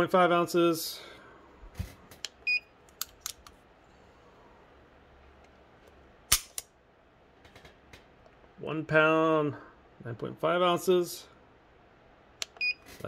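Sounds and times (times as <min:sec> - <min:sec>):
pistol metallic clicks: 0:06.3 - 0:06.7.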